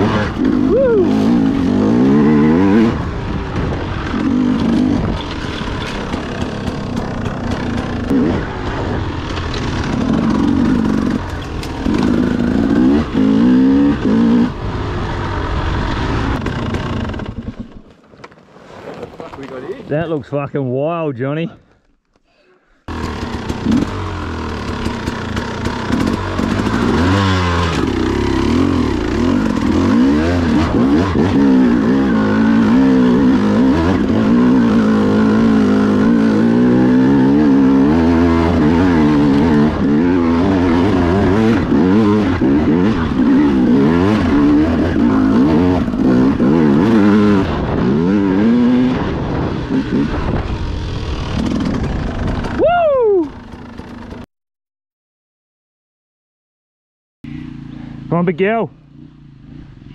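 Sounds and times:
dirt bike engine revving: 0.0s - 17.7s, 22.9s - 52.6s.

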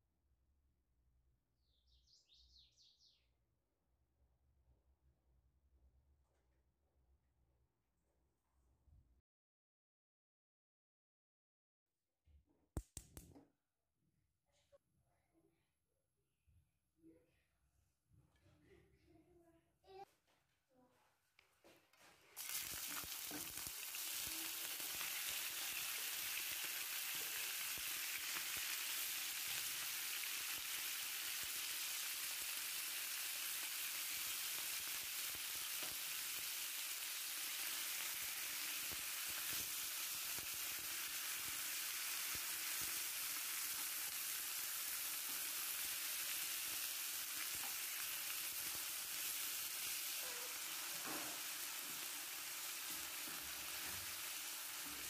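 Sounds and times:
chicken frying in oil: 22.4s - 55.0s.

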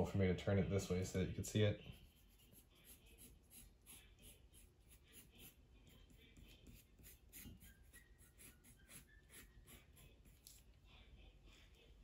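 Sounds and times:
pencil scratching on paper: 1.8s - 10.7s.

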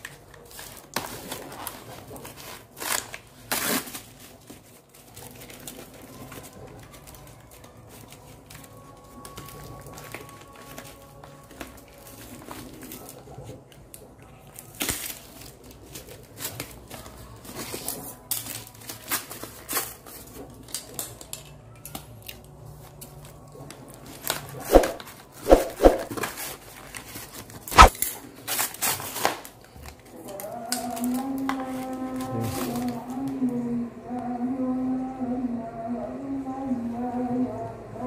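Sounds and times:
cardboard and tape ripping: 0.0s - 6.5s, 14.6s - 20.0s, 24.2s - 29.5s
cardboard being cut with a blade: 24.6s - 26.4s.

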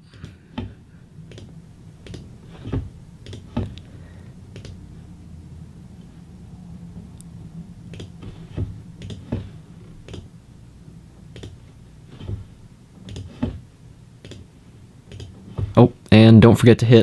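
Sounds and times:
faint low hum: 0.0s - 17.0s
computer mouse clicking: 1.3s - 2.2s, 3.2s - 3.8s, 4.5s - 4.8s, 7.9s - 8.1s, 9.0s - 9.2s, 10.0s - 10.3s, 14.2s - 14.5s, 15.1s - 15.4s.

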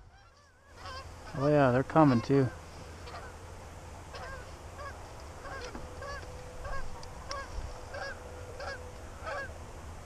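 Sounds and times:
geese honking: 0.0s - 3.4s, 4.1s - 9.6s.

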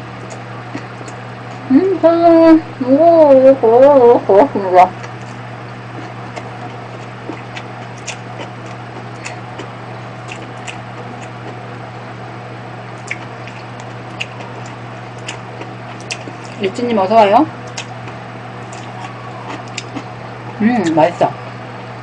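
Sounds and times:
steady low hum: 0.0s - 22.0s
lip and tongue clicks: 0.2s - 1.2s, 6.0s - 11.6s, 13.0s - 16.6s, 17.7s - 21.0s
wet chewing mouth sounds: 0.2s - 1.7s, 5.0s - 11.8s, 12.9s - 16.8s, 17.6s - 21.0s.

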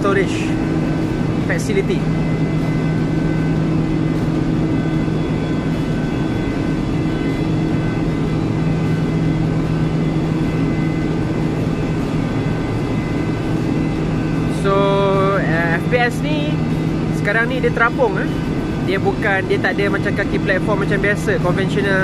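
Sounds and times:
high steady whines: 0.0s - 22.0s
machinery low hum: 0.0s - 22.0s.

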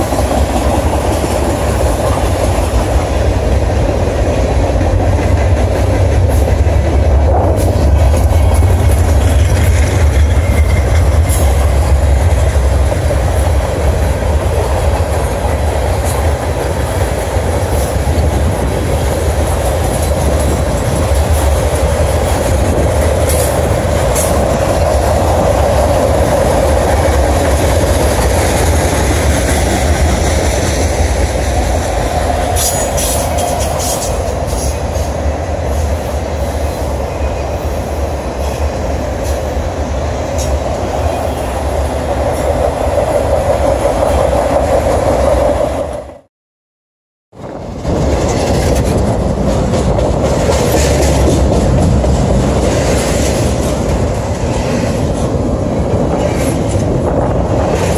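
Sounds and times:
wheels clicking over rail joints: 0.0s - 35.9s, 47.4s - 57.9s
steel wheels rumbling on rail: 0.0s - 46.3s, 47.3s - 57.9s.

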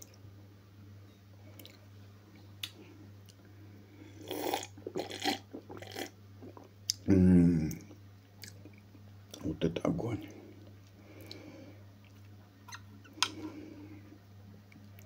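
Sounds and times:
slurping and swallowing: 4.3s - 7.0s.

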